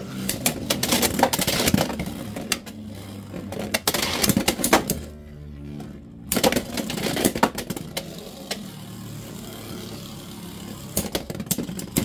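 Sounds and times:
spinning tops whirring: 6.3 - 12.0.

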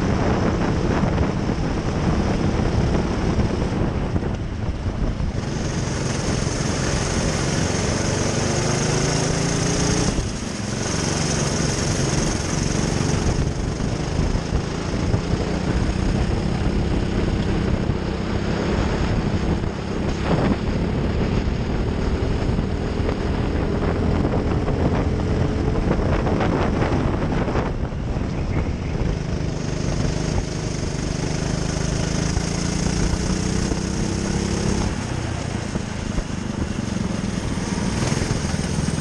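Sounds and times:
kart engine under throttle: 0.0 - 39.0.

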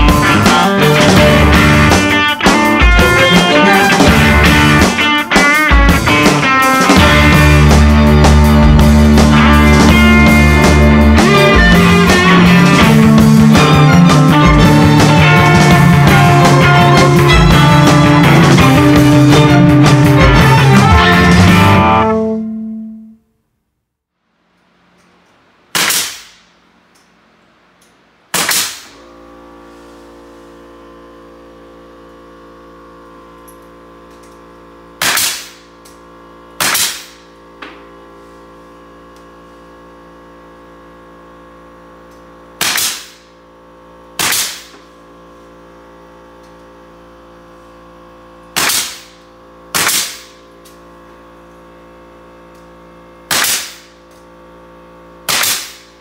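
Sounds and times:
steady machine hum: 0.0 - 56.0
nail gun firing: 25.7 - 26.5, 28.3 - 29.0, 35.0 - 35.7, 36.6 - 37.3, 42.6 - 43.4, 44.2 - 44.9, 48.5 - 50.5, 53.3 - 54.1, 55.2 - 56.0.

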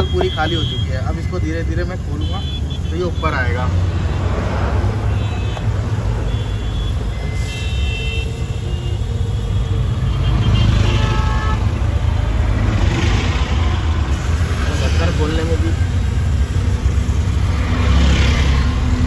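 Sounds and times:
road traffic rumble: 0.0 - 19.0
vehicle horn toots: 5.1 - 11.7.

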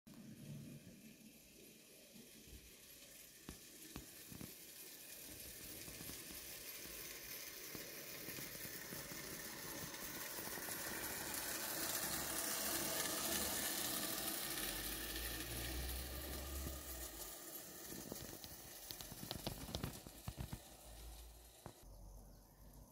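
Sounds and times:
model train wheels and motor hiss: 0.1 - 22.9.

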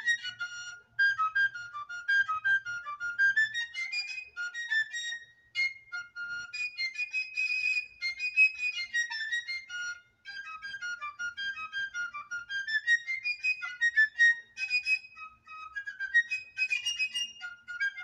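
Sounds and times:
quick wind instrument melody: 0.0 - 5.0.

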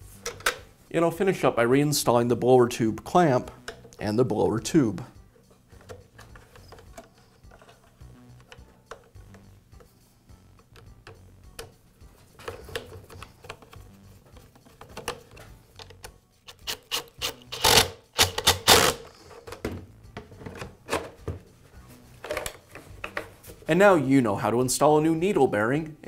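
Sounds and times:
plastic tube rubbing: 5.7 - 9.4
plastic parts clicking and scraping: 5.8 - 9.1, 12.4 - 19.7, 22.2 - 23.3.

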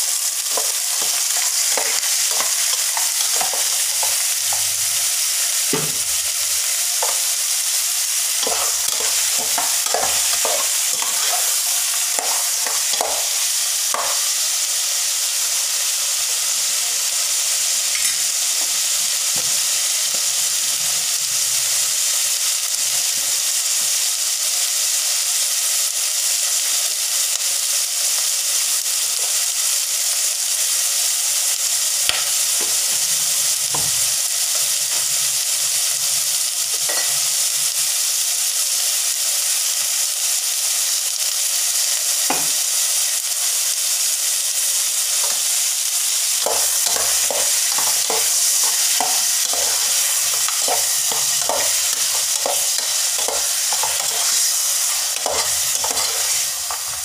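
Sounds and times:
chicken sizzling in a pot: 0.0 - 57.0
metal ladle scraping a pot: 46.5 - 57.0.

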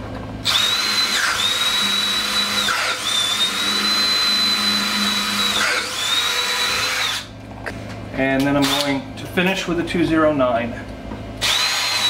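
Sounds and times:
cordless drill whining: 0.4 - 7.3, 11.4 - 12.0.

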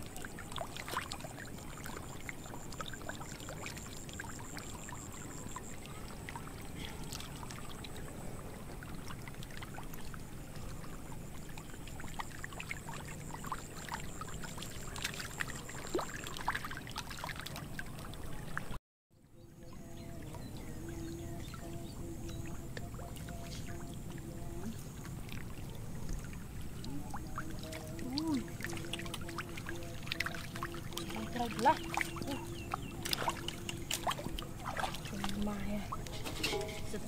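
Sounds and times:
fish thrashing in shallow water: 24.6 - 37.0.

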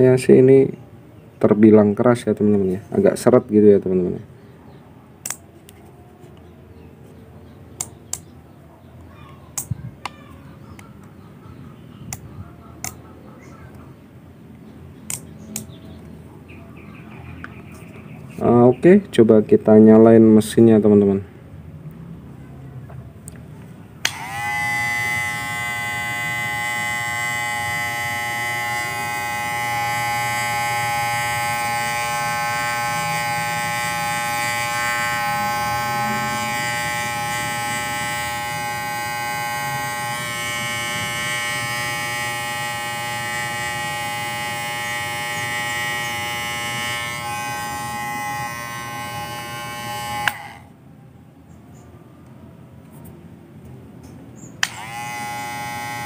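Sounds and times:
hair clipper buzzing: 15.1 - 15.7, 24.0 - 50.7, 54.6 - 56.0.

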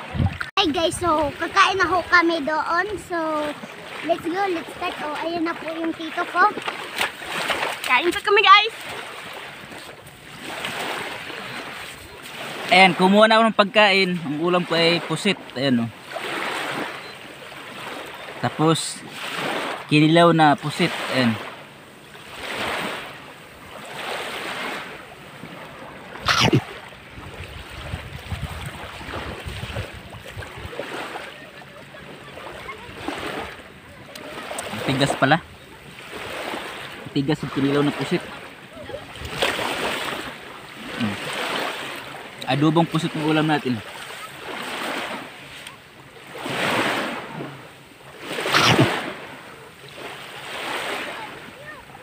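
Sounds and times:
wind buffeting microphone: 0.0 - 8.7, 27.0 - 31.1
small waves washing on shore: 0.0 - 52.0
short sharp loud noise: 48.4 - 49.0.

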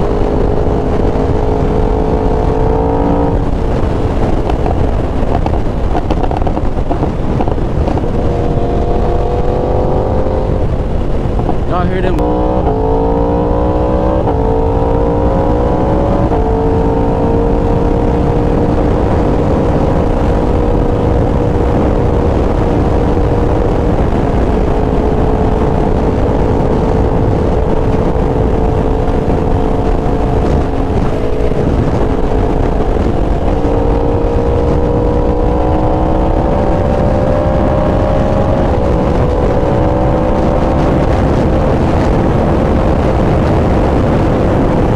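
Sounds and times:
motorcycle engine revving: 0.0 - 44.9
wind and road rush: 0.0 - 44.9.

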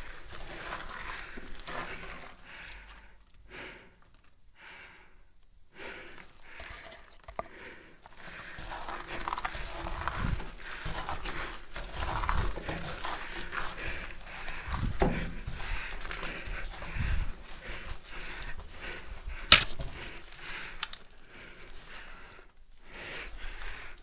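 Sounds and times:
clothing and gear rustling: 0.0 - 2.4, 8.1 - 24.0
person breathing hard: 0.0 - 24.0
scuffing on concrete: 8.2 - 20.1.

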